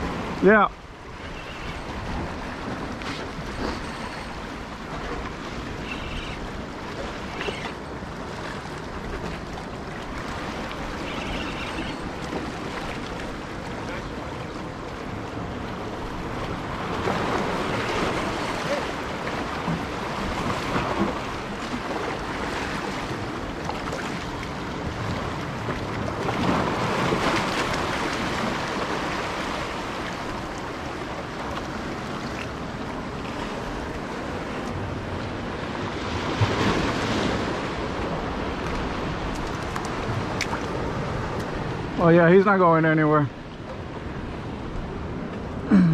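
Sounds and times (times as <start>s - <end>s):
waves washing against rocks: 0.0s - 45.6s.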